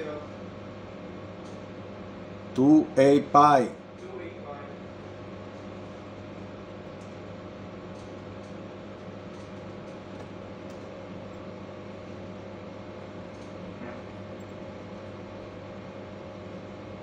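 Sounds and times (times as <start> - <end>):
ship machinery drone: 2.6 - 3.8.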